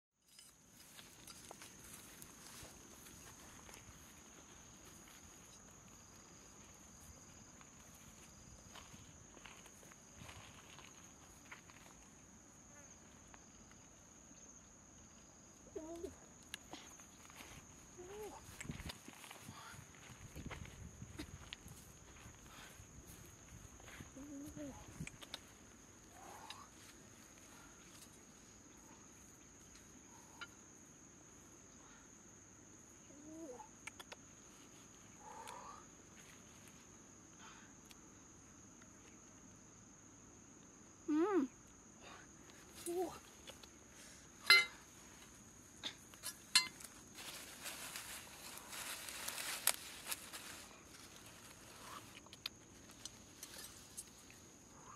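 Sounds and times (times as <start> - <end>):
insects trilling: 0.3 - 54.9
high-pitched insect drone: 17.2 - 31.1, 34.5 - 37.2.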